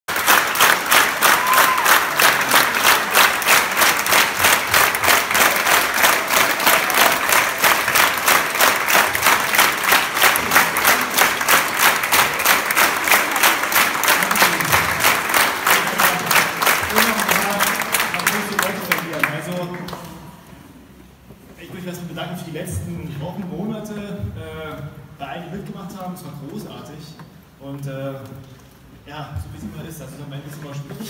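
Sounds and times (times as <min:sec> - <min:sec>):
crowd clapping in unison: 0:00.1 - 0:20.3.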